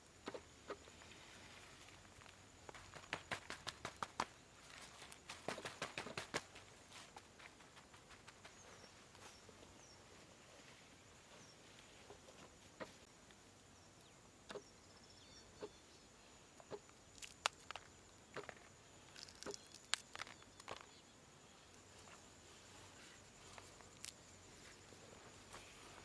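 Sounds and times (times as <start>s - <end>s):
faint high bird chirps: 13.8s - 16.9s, 19.1s - 22.0s.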